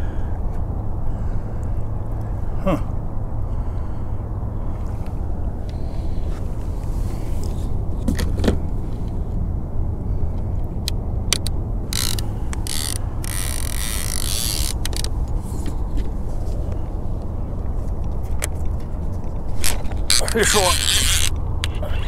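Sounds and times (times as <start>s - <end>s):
low wind rumble: 0.0s - 22.0s
fishing reel clicks: 11.9s - 15.1s, 19.6s - 21.4s
fishing reel ratchety buzzing: 11.9s - 15.1s, 19.6s - 21.4s.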